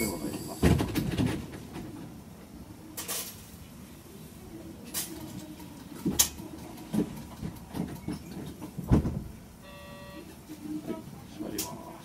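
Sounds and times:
knocks and thumps in train car: 0.0 - 2.2, 5.2 - 9.5.

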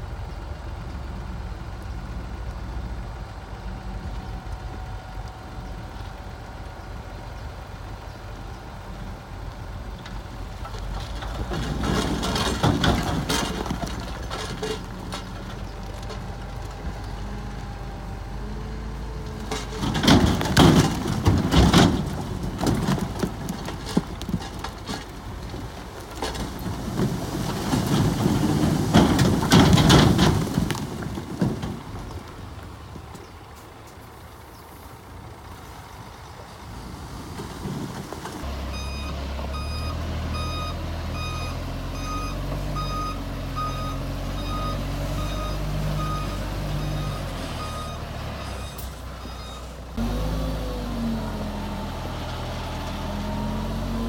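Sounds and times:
diesel engine drone: 0.0 - 27.4, 38.3 - 54.0
bulldozer clattering and clanking: 0.0 - 54.0.

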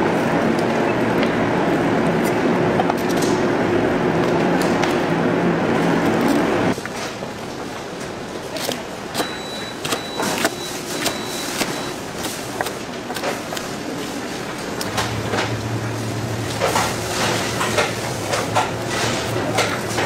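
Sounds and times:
machine hum: 0.0 - 20.0.

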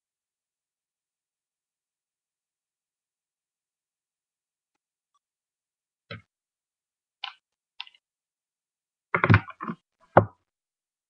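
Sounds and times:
makeup items knocking on hard surface: 9.2 - 10.4.

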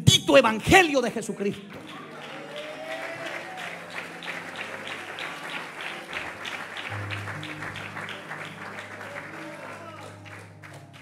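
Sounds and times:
congregation clapping in rhythm: 1.4 - 11.0
low held musical notes: 4.4 - 11.0.

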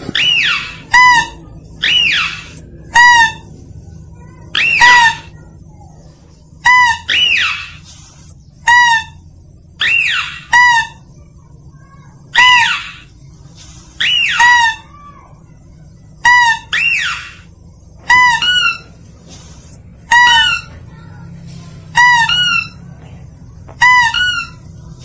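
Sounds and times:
high-pitched lure calls: 0.1 - 3.5, 4.4 - 5.6, 6.6 - 11.1, 13.9 - 15.0, 16.2 - 17.5, 18.1 - 19.0, 20.0 - 20.9, 21.9 - 22.9, 23.8 - 24.7.

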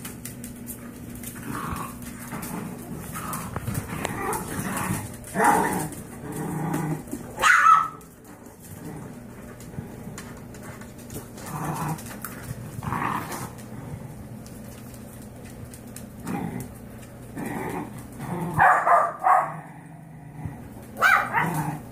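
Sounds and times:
dog growling and snapping: 0.0 - 18.6, 19.2 - 21.9
puppies yapping: 7.4 - 8.1.

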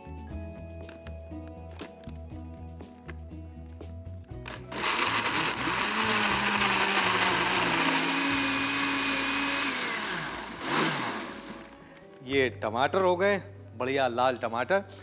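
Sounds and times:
electric blender running: 4.5 - 11.8.

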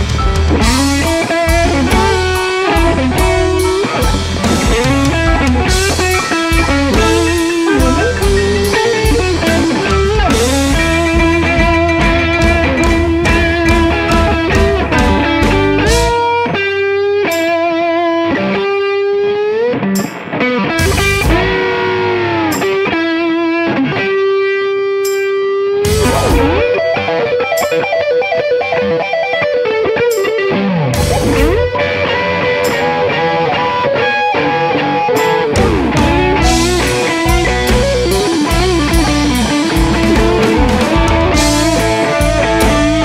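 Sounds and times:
bass and drums: 0.0 - 16.4, 20.7 - 22.9, 25.8 - 27.0, 30.9 - 31.8, 35.0 - 43.0
electric guitar solo: 0.0 - 43.0.

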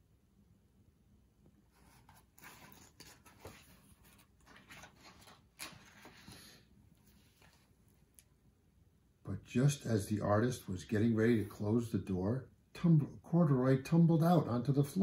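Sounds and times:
book page turning: 1.7 - 7.7
paper rustling: 1.7 - 7.7.

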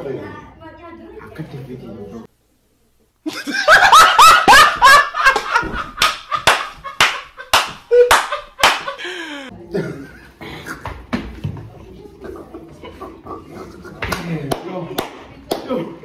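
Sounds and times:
man laughing loudly: 3.3 - 9.5.

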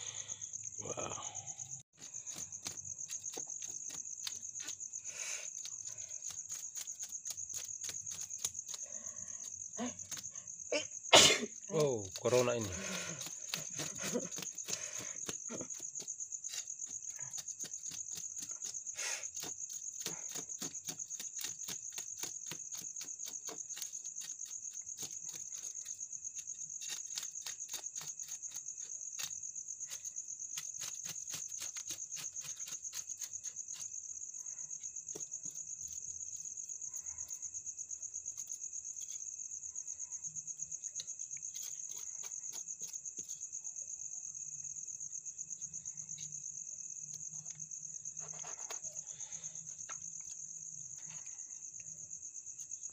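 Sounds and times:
crickets trilling: 0.0 - 52.9
knife scraping fish scales: 12.6 - 33.9, 41.4 - 43.4.

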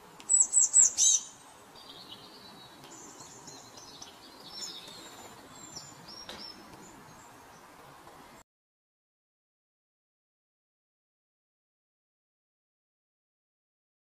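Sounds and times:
high twittering birdsong: 0.0 - 8.4
songbirds chirping: 0.0 - 8.4.

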